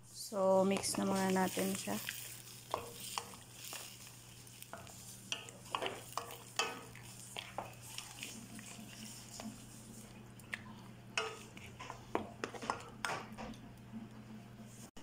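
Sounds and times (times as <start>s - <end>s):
faint simmering sizzle: 0.0s - 15.0s
wooden spatula scraping a wok: 0.3s - 10.2s, 11.2s - 13.1s.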